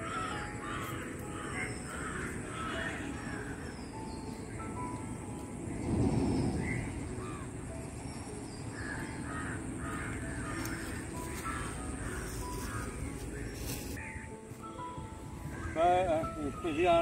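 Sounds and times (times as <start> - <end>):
crows cawing: 0.0 - 4.2, 6.6 - 7.6, 8.7 - 16.6.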